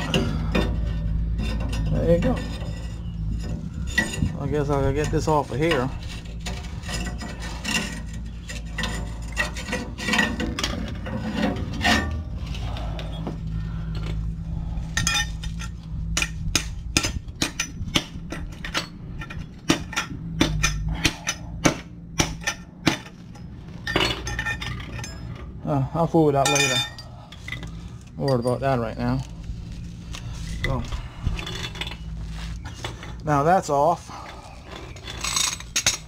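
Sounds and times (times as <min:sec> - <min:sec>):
metal clinking and knocking: 0:15.0 - 0:25.6, 0:34.7 - 0:36.0.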